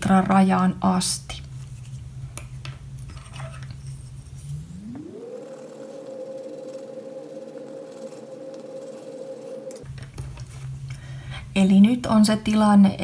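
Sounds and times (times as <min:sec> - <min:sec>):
hum gliding up in pitch: 0:04.1 - 0:10.0.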